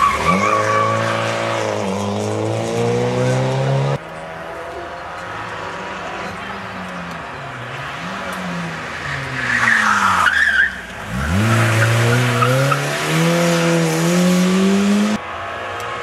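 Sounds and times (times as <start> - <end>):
rally car engine revving: 0.0 - 6.4, 7.5 - 16.0.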